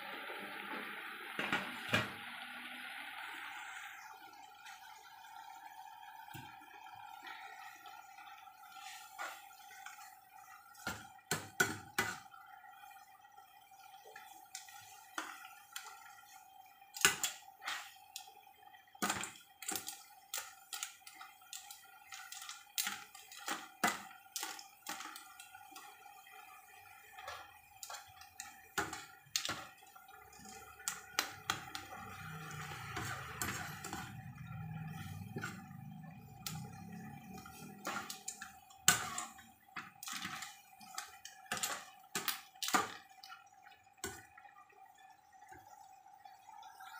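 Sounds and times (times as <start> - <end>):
metal ladle scraping pan: 30.9 - 35.7.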